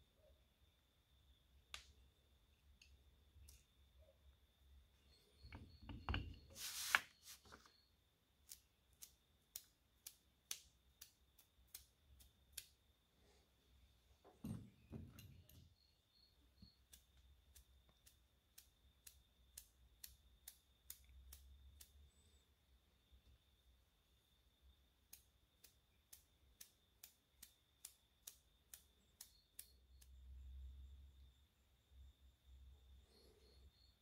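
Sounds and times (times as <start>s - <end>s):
small sharp clicks: 1.7s - 2.0s, 2.7s - 3.7s, 8.4s - 12.8s, 16.6s - 22.3s, 25.0s - 30.4s
short rustle: 6.5s - 7.7s.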